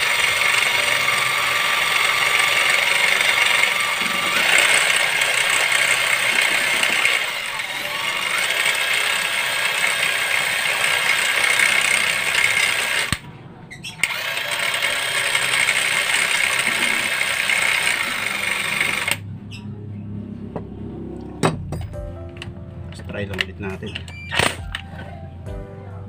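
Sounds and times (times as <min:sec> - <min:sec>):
cordless drill spinning on sandpaper: 0:00.0 - 0:13.2, 0:14.0 - 0:19.2.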